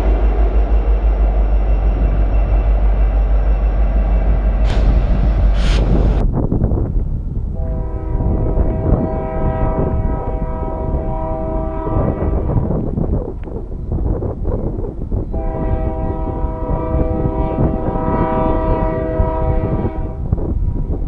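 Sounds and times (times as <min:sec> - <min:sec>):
freight train rumbling: 0:00.0 - 0:21.0
locomotive air horn blast: 0:07.6 - 0:12.5, 0:15.3 - 0:20.3.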